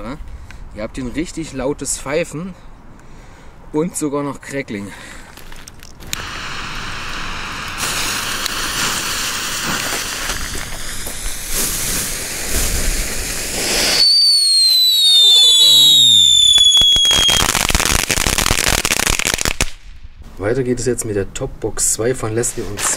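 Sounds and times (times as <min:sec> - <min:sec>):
dense crackling: 0:05.2 - 0:20.6
firework fountains hissing: 0:05.4 - 0:19.6
descending firework whistle: 0:13.5 - 0:18.0.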